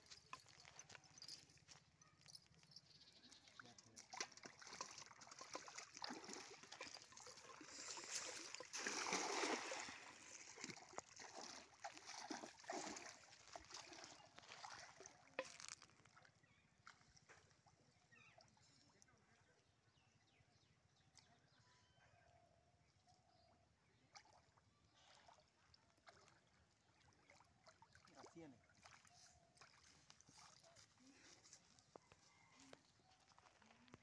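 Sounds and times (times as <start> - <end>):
wading splashes and sloshing: 3.9 - 18.4, 24.1 - 31.4
net slapping water with splash: 4.0 - 15.3.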